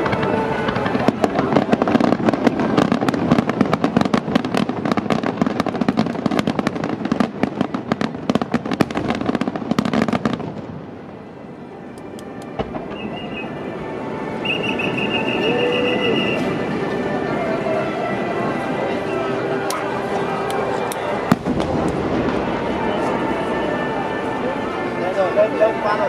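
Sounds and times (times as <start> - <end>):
firework bangs and crackles: 0.0 - 11.2, 12.0 - 13.7, 19.6 - 24.5.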